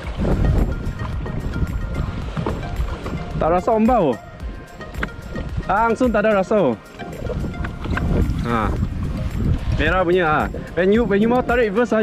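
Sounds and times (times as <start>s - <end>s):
background music with steady beat: 0.0s - 12.0s
kayak rushing through water: 0.0s - 12.0s.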